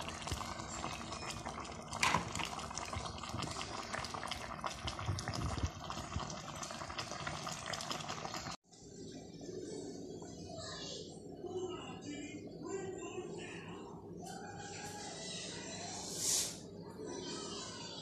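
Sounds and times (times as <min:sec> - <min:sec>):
curry sauce bubbling in a pan: 0:00.0 - 0:08.6.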